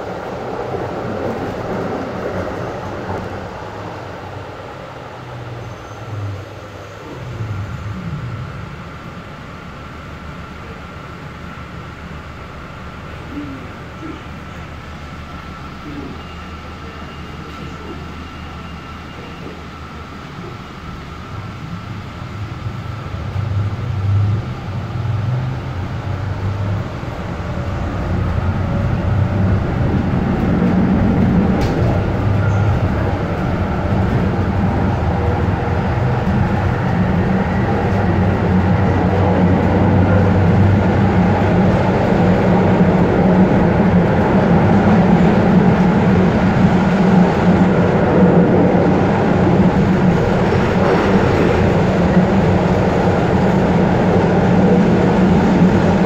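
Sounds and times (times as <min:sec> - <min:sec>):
tram hum and rumble: 0:00.0 - 0:56.0.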